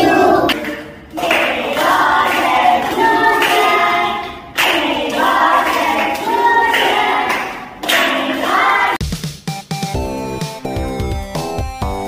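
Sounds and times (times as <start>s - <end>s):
children singing: 0.0s - 9.0s
hands clapping: 0.4s - 8.8s.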